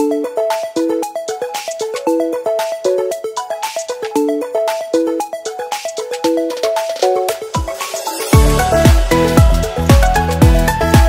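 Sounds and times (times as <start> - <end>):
electronic music: 0.0 - 11.0
deep kick drum beat: 8.4 - 11.0.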